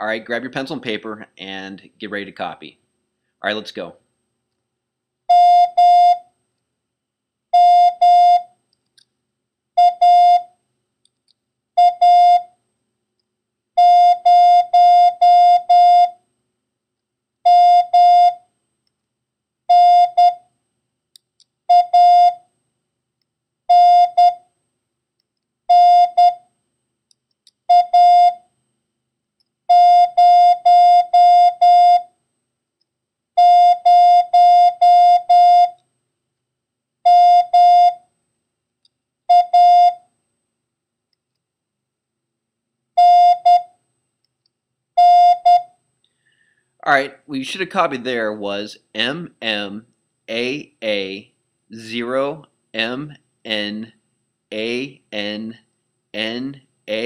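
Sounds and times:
morse code beeps: 0:21.7 - 0:22.4, 0:25.7 - 0:26.4, 0:27.7 - 0:28.4, 0:29.7 - 0:32.1, 0:33.4 - 0:35.8, 0:37.1 - 0:38.0, 0:39.3 - 0:40.0, 0:43.0 - 0:43.7, 0:45.0 - 0:45.7.

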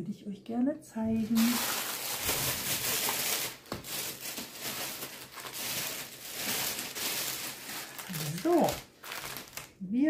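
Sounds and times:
plastic packaging crinkling: 0:01.2 - 0:09.8.

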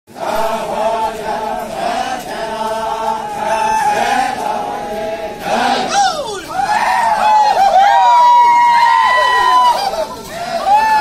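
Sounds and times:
group of voices chanting: 0:00.1 - 0:07.9.

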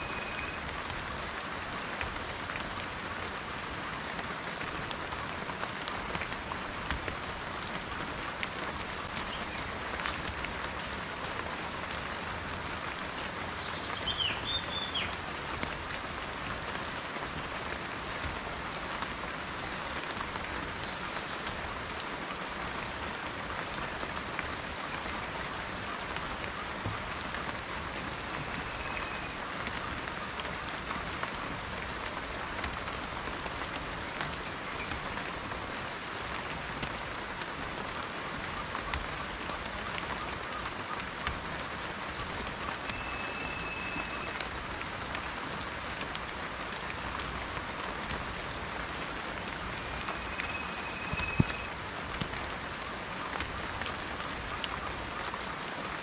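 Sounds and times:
rain on foliage: 0:00.0 - 0:56.0.

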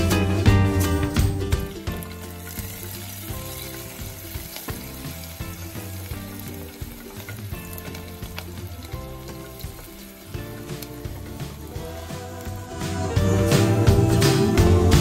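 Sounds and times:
onions sizzling: 0:00.0 - 0:15.0
wooden spatula stirring: 0:01.8 - 0:13.0.

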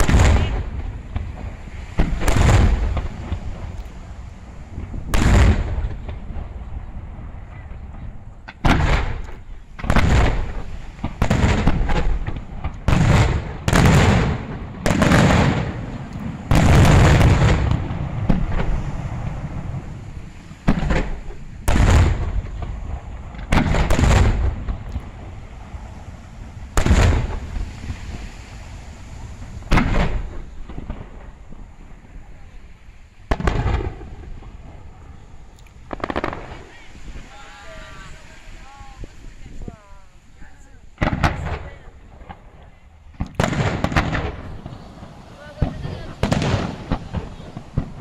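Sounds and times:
firework shells bursting: 0:35.5 - 0:37.3, 0:41.0 - 0:48.0.

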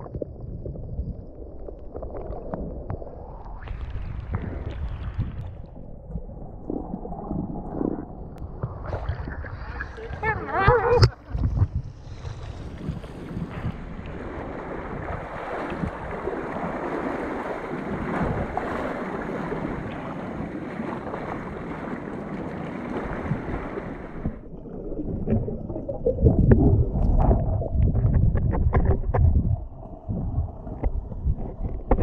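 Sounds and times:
muffled underwater rush: 0:00.0 - 0:32.0
wind on microphone: 0:02.6 - 0:24.4, 0:26.2 - 0:32.0
seawater sloshing: 0:06.4 - 0:29.2
low underwater thumps: 0:10.2 - 0:16.6, 0:25.1 - 0:32.0.

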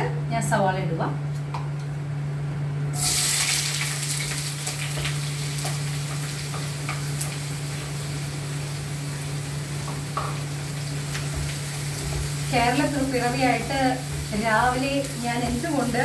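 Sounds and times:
onions sizzling in hot oil: 0:02.9 - 0:16.0.

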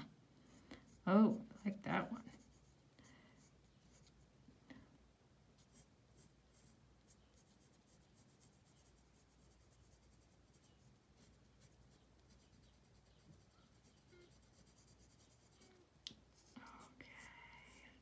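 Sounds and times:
low steady hum: 0:00.0 - 0:18.0
pencil scratching on paper: 0:02.2 - 0:02.8, 0:03.4 - 0:04.2, 0:05.6 - 0:15.8.

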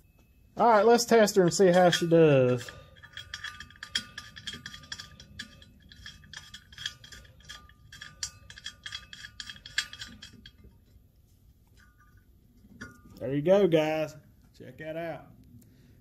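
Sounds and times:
bolt clicking and scraping in metal: 0:01.3 - 0:11.0.

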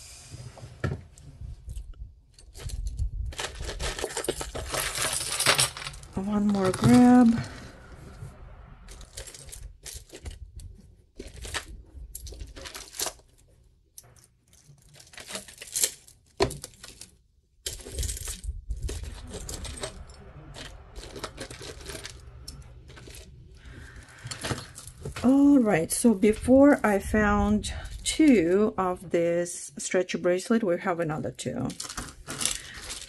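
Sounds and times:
beads and metal chains clinking: 0:02.4 - 0:07.5, 0:14.2 - 0:16.2, 0:17.6 - 0:25.1.

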